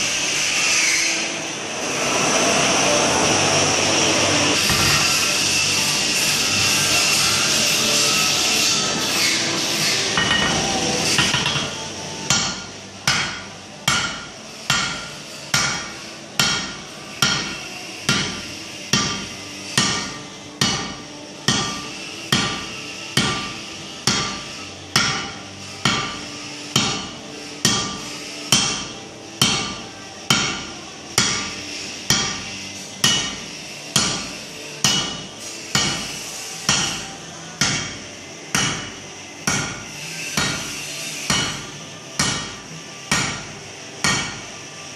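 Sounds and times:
hammer striking metal on anvil: 0:04.6 - 0:05.4, 0:08.2 - 0:44.5.

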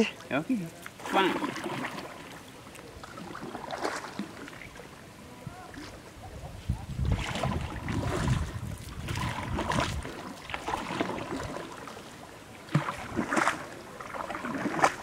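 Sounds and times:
paddle strokes splashing: 0:00.0 - 0:15.0
wind buffeting microphone: 0:05.3 - 0:11.6.

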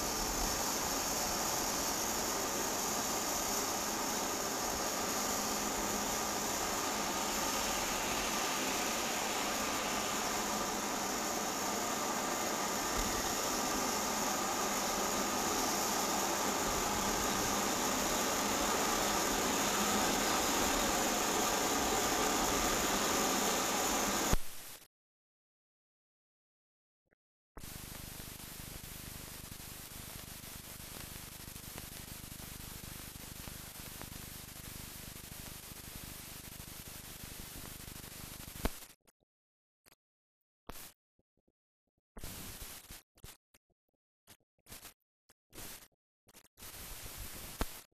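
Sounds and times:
steady hiss: 0:00.0 - 0:24.6, 0:27.6 - 0:38.8
click: 0:47.6 - 0:47.8.

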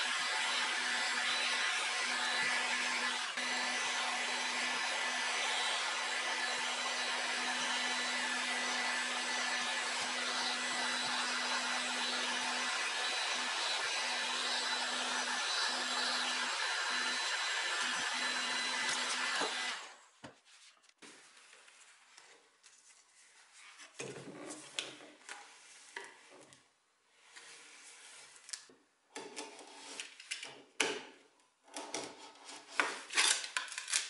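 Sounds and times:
heat gun blowing: 0:00.0 - 0:20.0
soft scraping and rubbing: 0:20.4 - 0:28.6.

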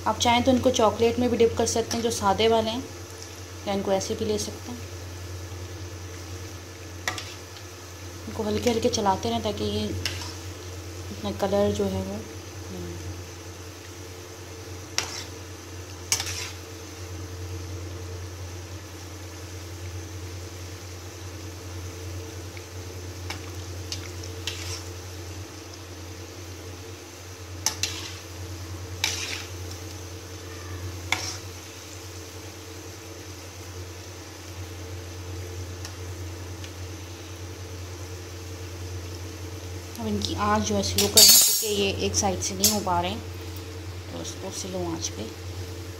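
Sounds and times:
donuts sizzling in hot oil: 0:00.0 - 0:45.9.

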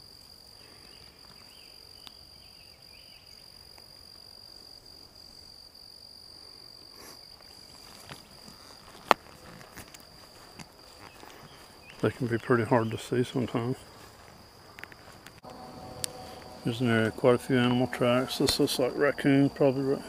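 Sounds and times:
high-pitched insect drone: 0:00.0 - 0:20.0
footsteps on sandy ground: 0:06.8 - 0:19.6.

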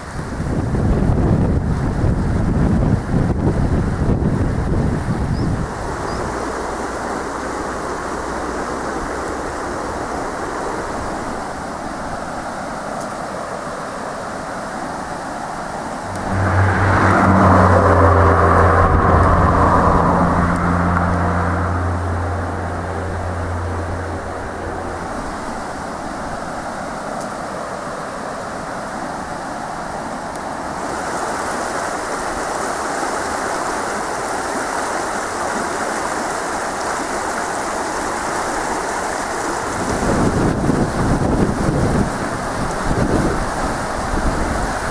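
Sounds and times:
river water rushing: 0:05.3 - 0:44.9
vehicle engine hum: 0:15.7 - 0:27.9.

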